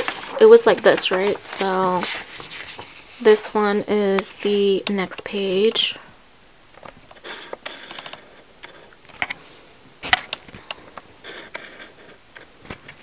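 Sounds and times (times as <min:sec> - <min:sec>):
photo sheets rustling: 0:00.0 - 0:04.8.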